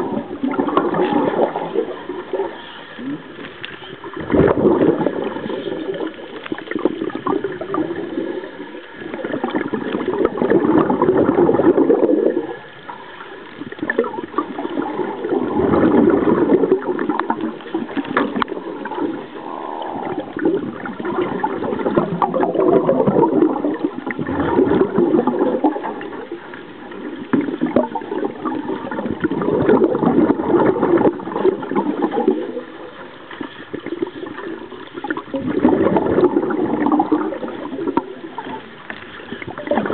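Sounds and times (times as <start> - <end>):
bubbles gurgling underwater: 0.0 - 39.9.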